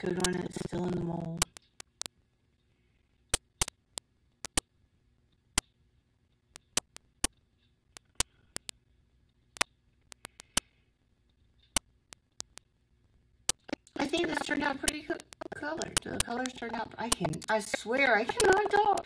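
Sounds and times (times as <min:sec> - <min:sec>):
stir stick tapping plastic cup: 0:13.7 - 0:19.0.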